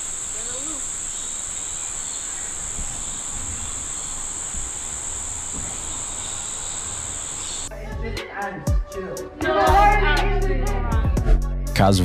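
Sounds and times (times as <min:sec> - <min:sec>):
insects droning shrilly: 0:00.0 - 0:07.7.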